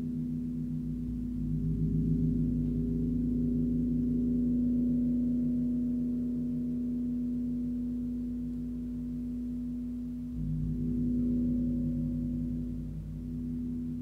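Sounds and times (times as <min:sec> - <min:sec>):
large gong ringing: 0:10.3 - 0:14.0.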